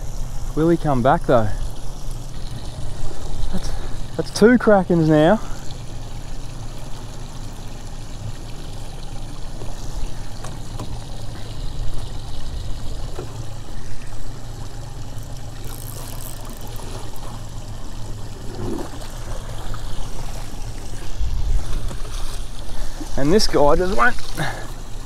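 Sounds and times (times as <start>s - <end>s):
water lapping against boat hull: 0.0s - 25.0s.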